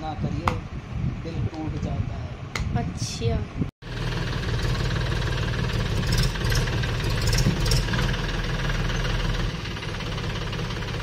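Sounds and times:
tractor diesel engine idling: 3.9s - 11.0s.

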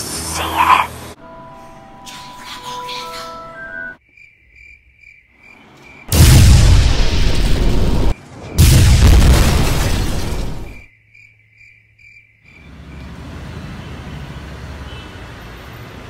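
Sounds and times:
music: 1.2s - 4.0s
cricket chirp effect: 2.1s - 9.3s, 9.9s - 13.2s
magic blast sound effect: 6.1s - 10.7s.

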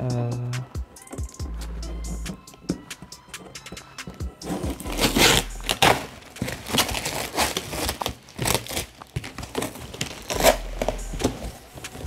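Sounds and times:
tape and plastic wrap tearing: 4.4s - 12.0s.

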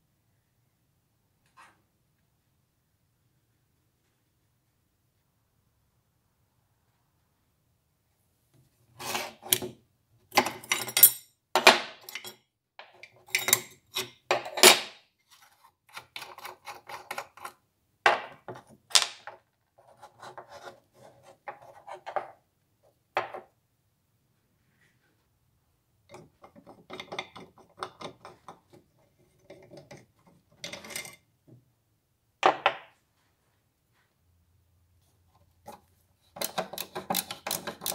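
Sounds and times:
small clicks and rubbing: 35.3s - 37.9s.

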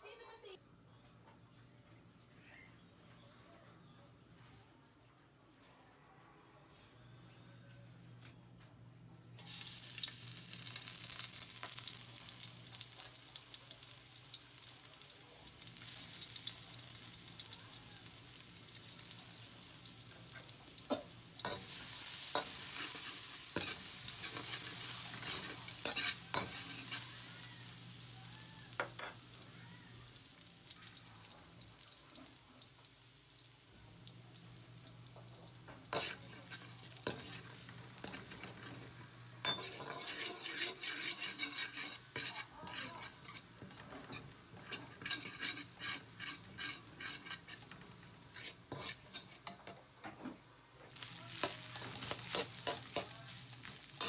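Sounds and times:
garlic sizzling in hot oil: 9.4s - 50.0s, 50.9s - 54.0s
metal ladle scraping wok: 20.4s - 27.8s, 35.9s - 49.7s.

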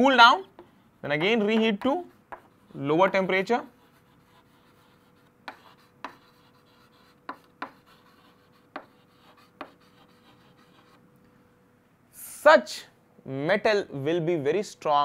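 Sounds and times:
faint steady hum: 0.0s - 15.0s
chalk tapping on chalkboard: 0.4s - 11.0s.

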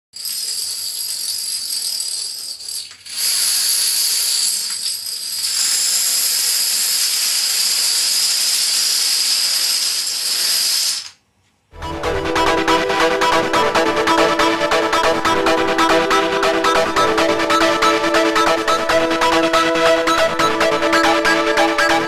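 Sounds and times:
dominoes toppling and clattering: 0.2s - 11.2s.

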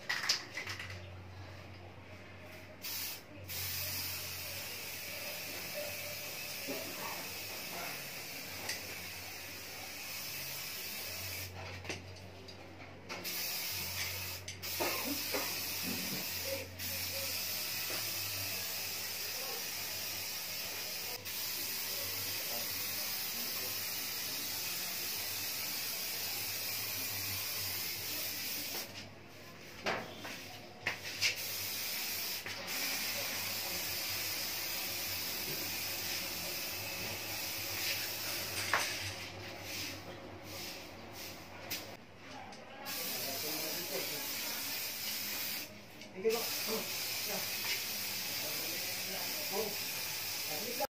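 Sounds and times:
aerosol spray can hissing: 2.8s - 11.5s, 13.2s - 28.9s, 31.1s - 39.0s, 42.9s - 45.7s, 46.3s - 50.9s.

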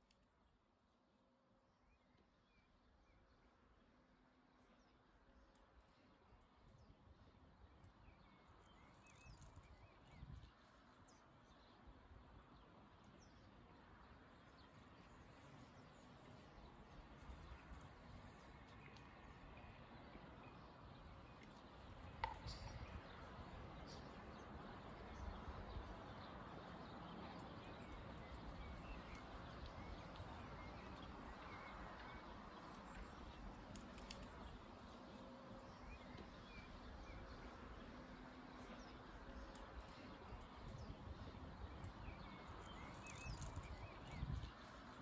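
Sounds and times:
small bird chirps: 41.6s - 44.8s.

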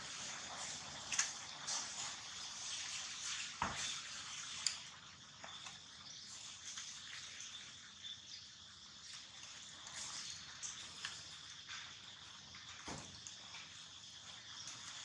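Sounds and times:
steady high hiss: 0.0s - 15.0s.

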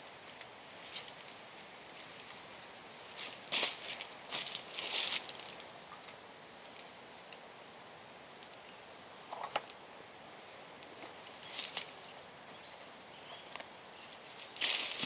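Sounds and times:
high insect drone: 0.0s - 15.0s
footsteps crunching dry leaves: 1.9s - 5.7s, 11.4s - 12.0s, 14.0s - 15.0s.

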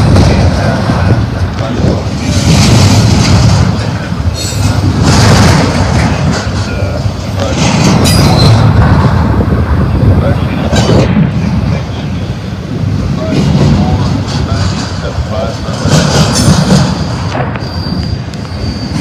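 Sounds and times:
train wheels rumbling on rail: 0.0s - 19.0s
high wheel squeals: 17.0s - 19.0s.

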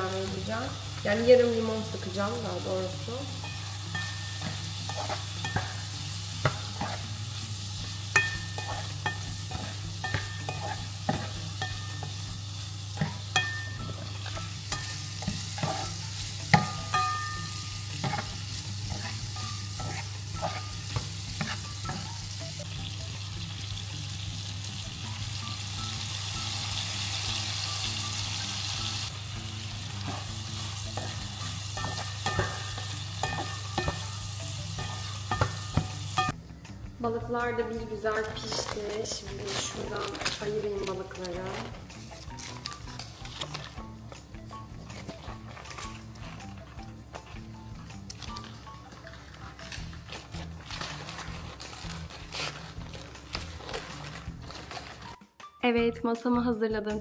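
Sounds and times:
shrimp sizzling in a pan: 0.0s - 36.4s
utensil scraping a pan: 3.4s - 12.3s, 12.9s - 22.2s, 29.8s - 36.3s, 48.3s - 55.0s.

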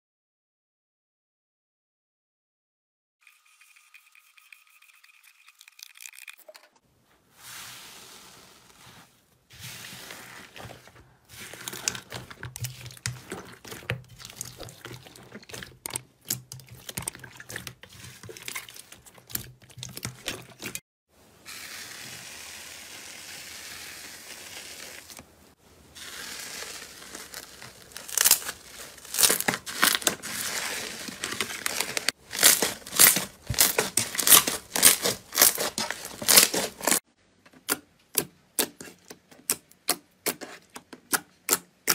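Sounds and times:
slime popping and squelching: 10.0s - 20.7s, 26.0s - 37.0s
slime being cut with a blade: 32.3s - 37.0s.

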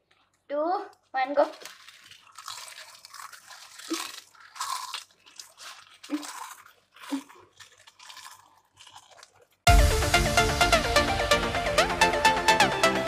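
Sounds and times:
chips crunching while chewed: 1.4s - 9.7s
loud electronic dance music: 9.7s - 13.0s.

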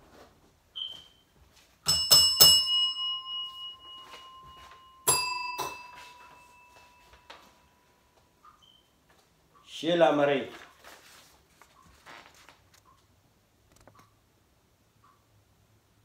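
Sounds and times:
service bell dinging: 1.9s - 8.0s.

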